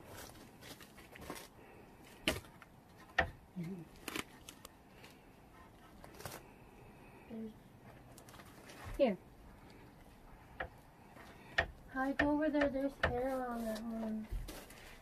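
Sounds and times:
wooden sticks knocking on poles: 0:03.0 - 0:03.5, 0:10.4 - 0:14.5.

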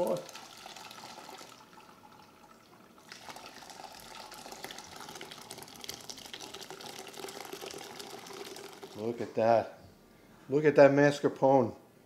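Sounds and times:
liquid pouring into strainer: 0:00.0 - 0:09.2.

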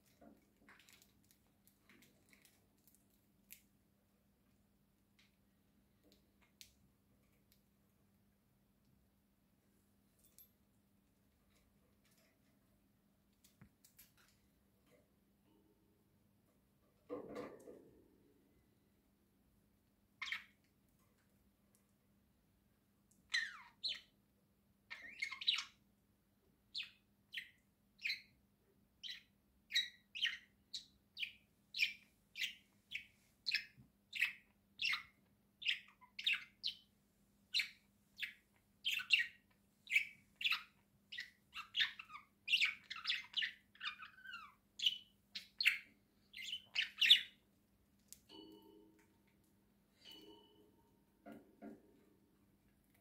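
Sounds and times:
budgerigars chirping: 0:37.6 - 0:47.4.

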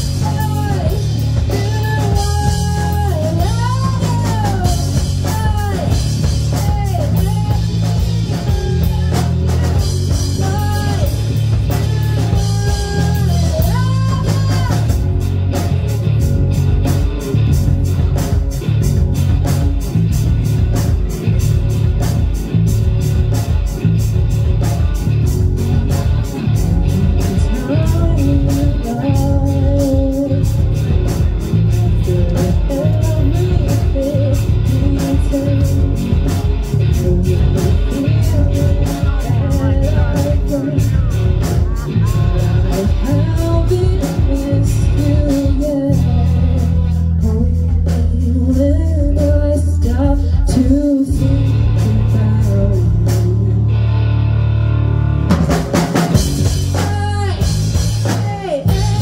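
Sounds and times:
person singing: 0:00.0 - 0:18.7, 0:23.2 - 0:53.9, 0:56.2 - 0:59.0
drum kit beat: 0:00.0 - 0:53.7, 0:55.2 - 0:59.0
bass guitar: 0:00.0 - 0:59.0
electric guitar: 0:00.0 - 0:59.0.

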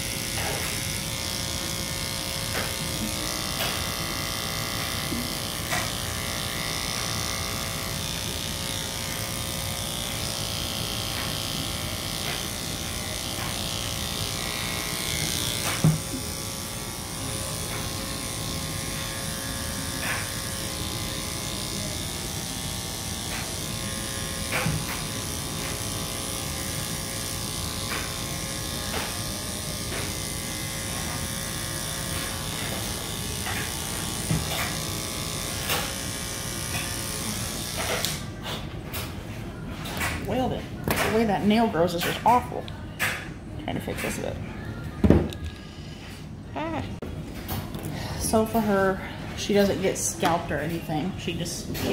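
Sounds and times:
small electric motor running: 0:00.0 - 0:38.5.

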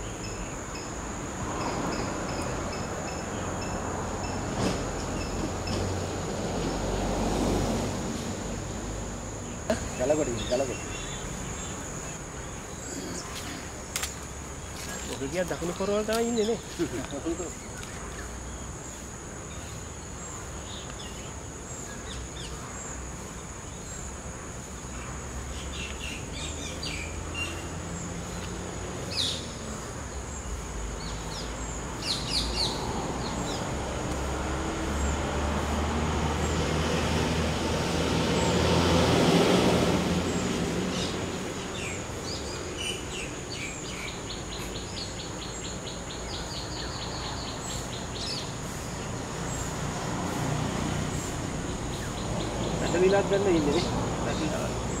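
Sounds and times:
birds chirping: 0:00.0 - 0:55.0.

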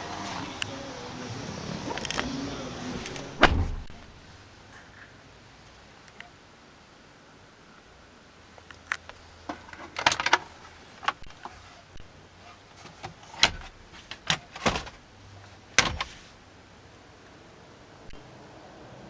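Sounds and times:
glove box plastic clicks and knocks: 0:09.5 - 0:11.4, 0:12.9 - 0:15.0, 0:15.8 - 0:16.1.

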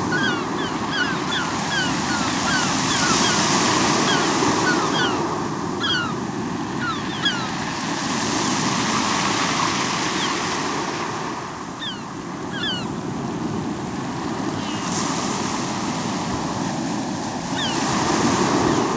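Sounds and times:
waves washing on pebble beach: 0:13.1 - 0:18.9.

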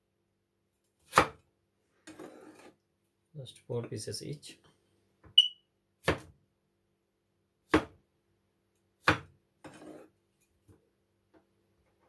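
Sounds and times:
knife chopping on cutting board: 0:01.1 - 0:01.4, 0:06.0 - 0:06.3, 0:07.7 - 0:08.0, 0:09.0 - 0:10.0.

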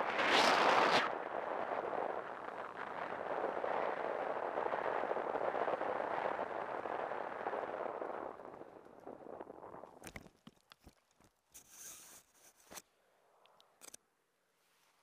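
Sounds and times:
wind rushing over microphone: 0:00.0 - 0:10.1.

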